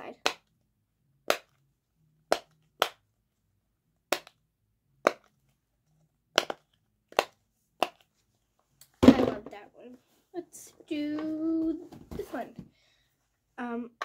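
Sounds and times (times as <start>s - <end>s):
pop-it toy bubbles popping: 4.1s - 4.4s, 6.3s - 8.0s.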